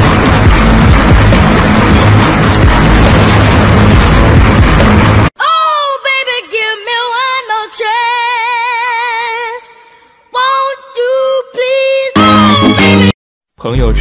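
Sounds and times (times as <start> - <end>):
high-pitched voice singing: 5.4 - 13.1.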